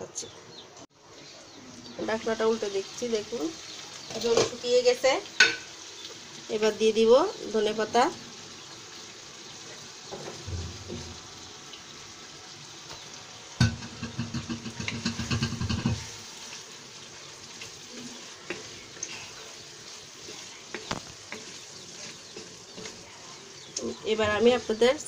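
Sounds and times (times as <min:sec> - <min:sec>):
curry sizzling in oil: 0:00.9 - 0:25.0
spatula scraping pan: 0:13.6 - 0:16.8, 0:17.4 - 0:24.8.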